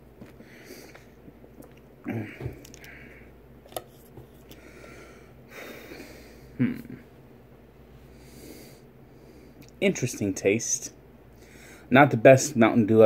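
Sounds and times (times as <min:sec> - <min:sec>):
man sipping and swallowing: 0:00.2 - 0:04.7.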